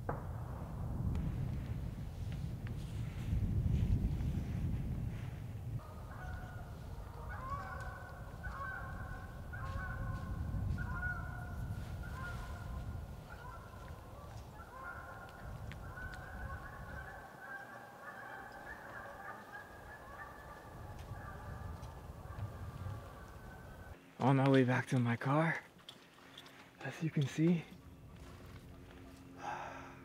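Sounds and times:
wind on microphone: 0.0s - 17.3s, 18.3s - 24.0s
geese honking: 5.8s - 24.0s.

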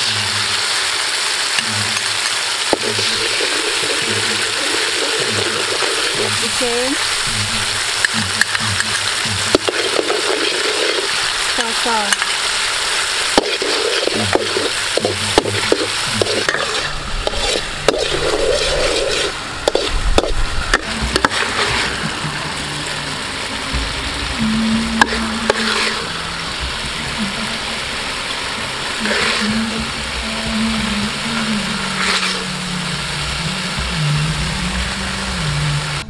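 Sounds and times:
food sizzling in oil: 0.0s - 36.0s
metal spatula scraping wok: 1.5s - 32.6s.

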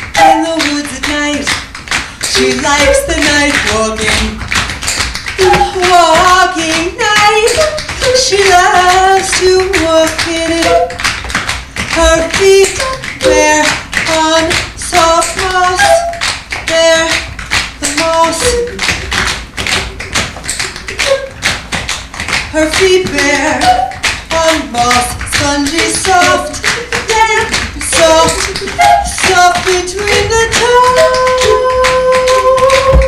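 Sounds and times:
wordless sung melody: 0.0s - 1.5s, 2.2s - 4.4s, 5.4s - 11.0s, 11.9s - 17.2s, 22.6s - 33.0s
tap shoes on stage floor: 0.0s - 33.0s.

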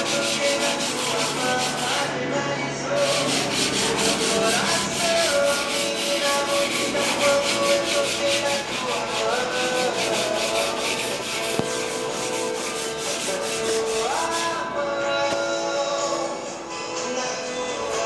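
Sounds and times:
sandpaper rubbing on wall: 0.0s - 2.2s, 2.9s - 14.7s.

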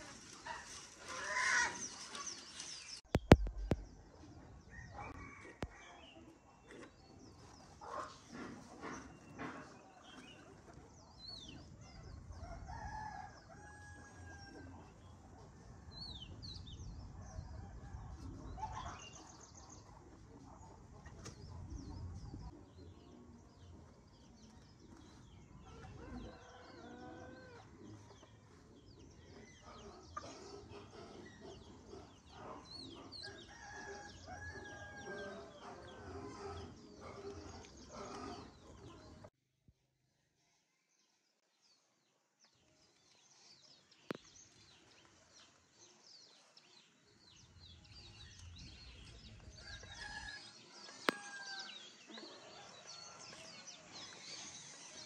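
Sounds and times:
chickens clucking: 0.0s - 10.9s, 24.9s - 34.0s
small birds chirping: 0.0s - 39.3s, 41.8s - 55.0s.

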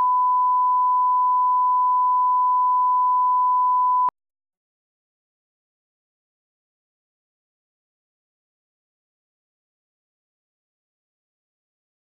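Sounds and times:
steady test tone beep: 0.0s - 4.1s.

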